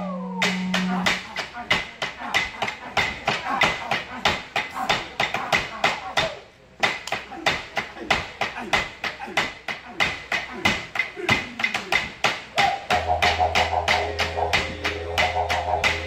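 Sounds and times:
didgeridoo drone: 0:00.0 - 0:01.3, 0:12.7 - 0:16.0.

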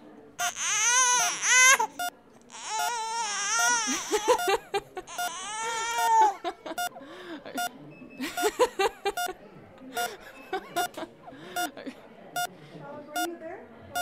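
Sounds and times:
infant crying: 0:00.4 - 0:06.5.

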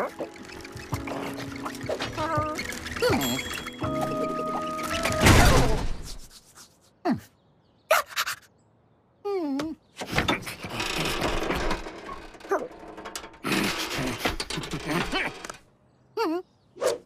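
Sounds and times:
rattling mechanical noise: 0:00.0 - 0:04.1, 0:10.0 - 0:15.6.

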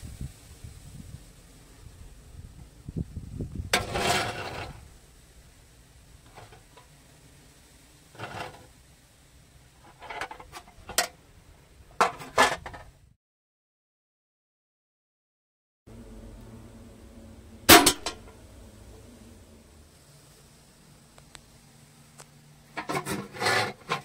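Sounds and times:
metal pan scraping rustle: 0:03.7 - 0:05.0, 0:06.2 - 0:07.0, 0:08.1 - 0:08.8, 0:09.8 - 0:11.2, 0:11.9 - 0:13.0, 0:22.7 - 0:24.0.

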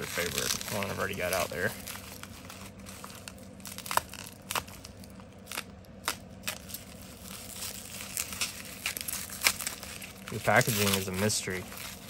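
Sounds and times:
bubble wrap crinkling: 0:00.0 - 0:12.0
sharp crackles: 0:00.0 - 0:12.0
blade cutting plastic: 0:05.5 - 0:12.0.

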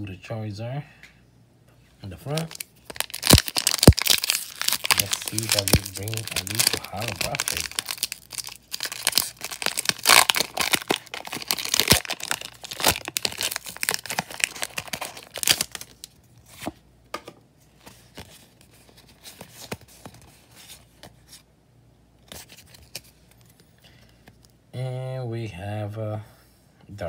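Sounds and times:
foil wrapper tearing and crinkling: 0:02.3 - 0:16.1.

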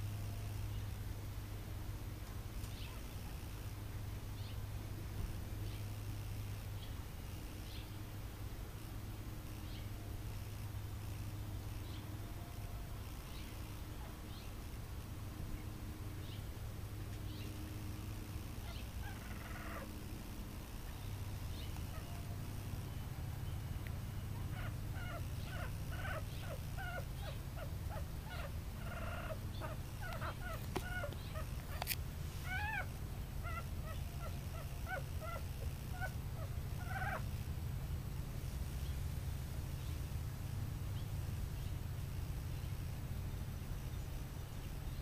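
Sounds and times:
steady low hum: 0:00.0 - 0:45.0
puppies squeaking and whimpering: 0:24.4 - 0:31.8, 0:32.4 - 0:37.3.

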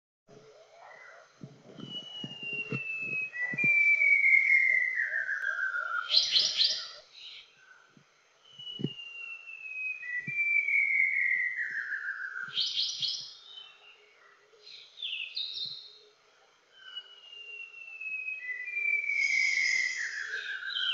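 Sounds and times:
bird singing whistles: 0:01.8 - 0:07.4, 0:08.4 - 0:14.0, 0:16.7 - 0:20.9.

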